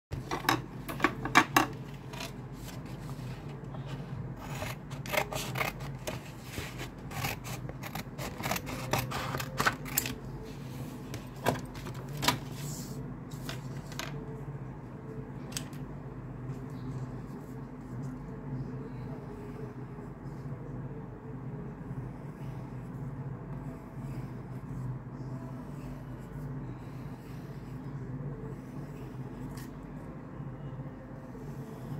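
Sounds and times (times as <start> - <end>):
steady low hum: 0.1 - 31.9
scissors snipping paper: 4.4 - 10.2.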